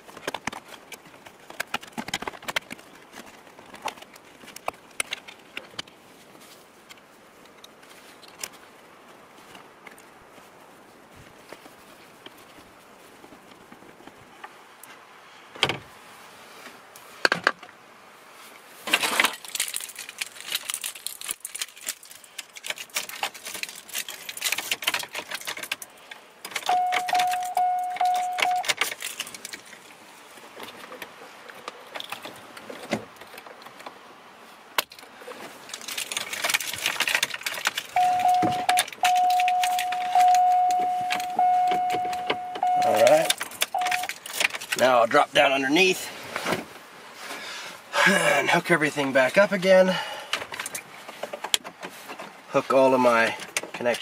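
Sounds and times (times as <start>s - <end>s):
plastic and metal clicks and rattles: 18.9s - 29.7s, 35.7s - 44.8s
electronic chime tone: 26.7s - 28.6s, 38.0s - 43.2s.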